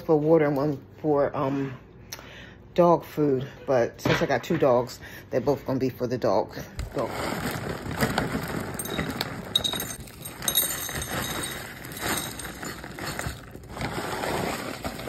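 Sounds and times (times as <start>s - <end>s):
kibble clattering into ceramic bowl: 8.6s - 13.6s.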